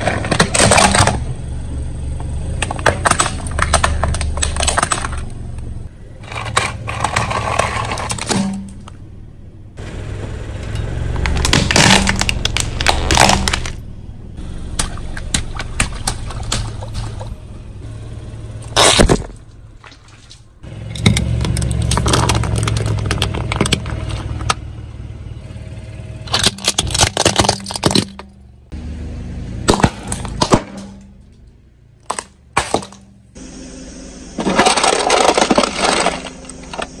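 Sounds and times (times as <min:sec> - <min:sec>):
metal crunching: 0:00.0 - 0:09.2, 0:09.8 - 0:25.0, 0:26.1 - 0:28.8, 0:29.6 - 0:33.6, 0:34.2 - 0:37.0
car tyre crushing objects: 0:00.0 - 0:25.1, 0:25.7 - 0:28.8, 0:29.6 - 0:37.0
low engine hum: 0:00.0 - 0:37.0
sharp crack: 0:11.2 - 0:13.9, 0:29.6 - 0:33.2.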